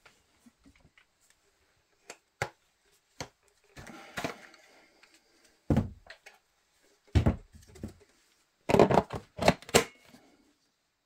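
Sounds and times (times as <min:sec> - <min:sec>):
work light knocks and thuds: 0:05.7 - 0:06.1, 0:07.1 - 0:08.0.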